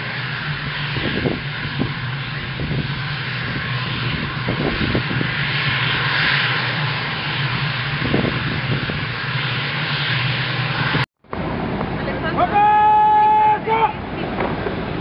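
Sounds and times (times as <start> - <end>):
jet engines running: 0.0 - 15.0.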